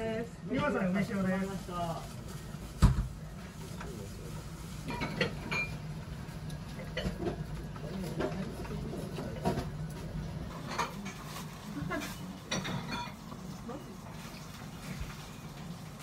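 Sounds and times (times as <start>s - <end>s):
tableware clinking: 4.8s - 5.9s, 10.5s - 13.3s.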